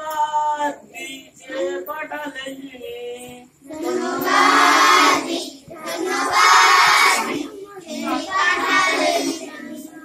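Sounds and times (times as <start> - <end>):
children singing: 3.7 - 10.0.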